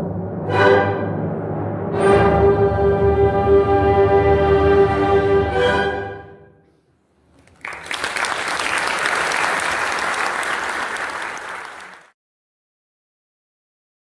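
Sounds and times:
audience applause: 0:07.4 - 0:12.2.

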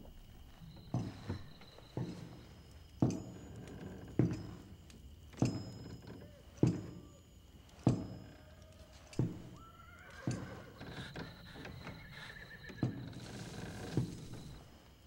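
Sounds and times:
heavy boot footsteps on wood: 0:00.4 - 0:04.8, 0:09.2 - 0:09.6
horse whinnying: 0:08.4 - 0:13.4.

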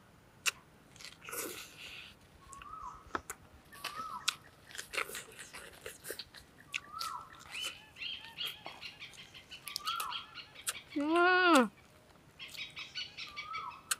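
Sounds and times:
person chewing food: 0:00.4 - 0:11.0.

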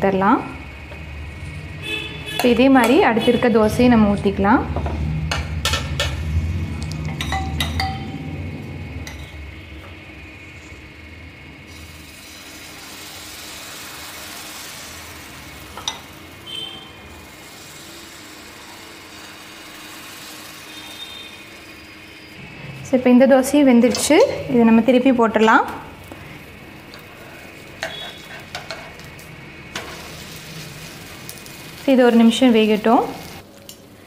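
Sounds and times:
steel utensils clinking: 0:05.3 - 0:08.3, 0:15.7 - 0:16.1, 0:26.9 - 0:29.1
batter sizzling on hot pan: 0:10.2 - 0:22.8, 0:25.7 - 0:34.0.

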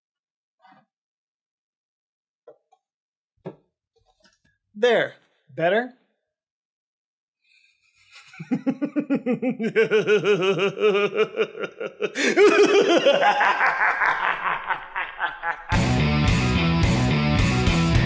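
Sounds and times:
man laughing: 0:08.1 - 0:15.9.

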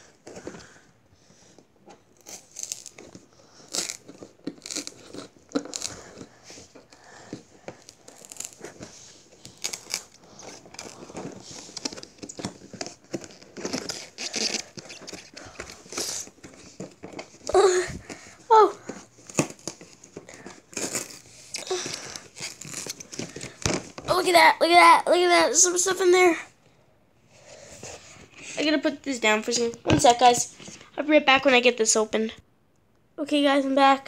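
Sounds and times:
cardboard crinkling and tearing: 0:02.2 - 0:24.1.

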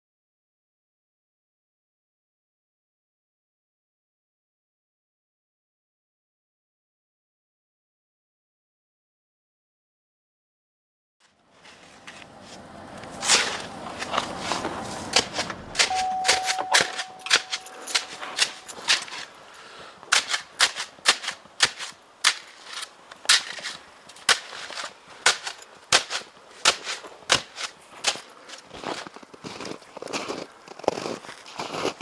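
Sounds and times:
footsteps crunching in snow: 0:11.2 - 0:32.0.

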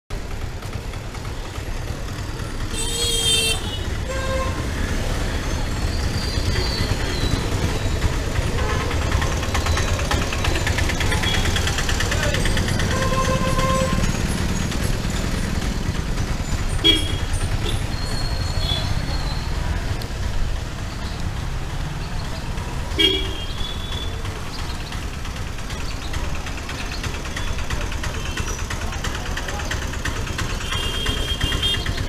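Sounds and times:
low engine rumble: 0:00.1 - 0:32.0
vehicle horn toots: 0:02.7 - 0:04.7, 0:08.4 - 0:09.2, 0:12.8 - 0:14.1, 0:16.8 - 0:17.8, 0:22.9 - 0:24.1, 0:30.6 - 0:32.0.

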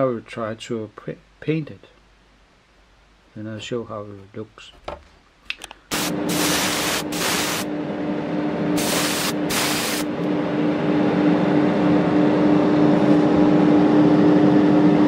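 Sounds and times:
hissing air bursts: 0:05.9 - 0:07.7, 0:08.8 - 0:10.1.

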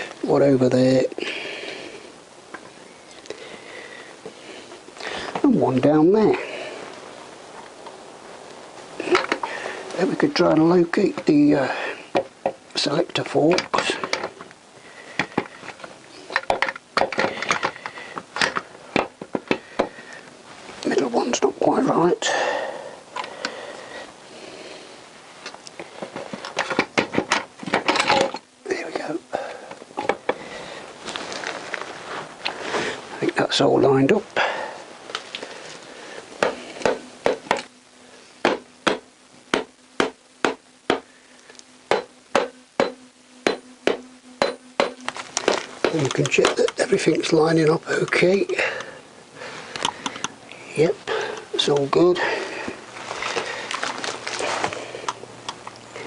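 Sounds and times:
steady low hum: 0:00.0 - 0:56.0
sharp knocks: 0:41.9 - 0:46.1.

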